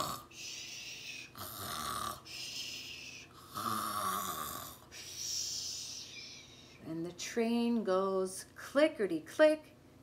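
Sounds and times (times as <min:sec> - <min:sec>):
woman imitating snoring: 0:00.0 - 0:05.5.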